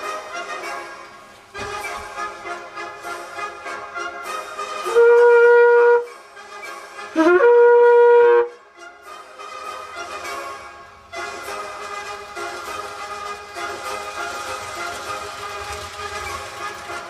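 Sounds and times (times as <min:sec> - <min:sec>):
horn blasts: 0:00.0 - 0:13.8
background music: 0:00.0 - 0:17.0.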